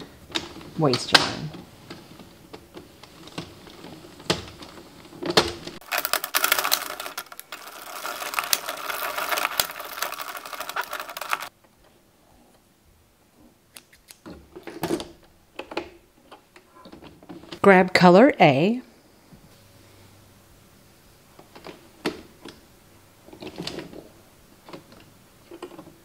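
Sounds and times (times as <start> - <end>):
knitting machine needles clattering: 0.0 - 11.5.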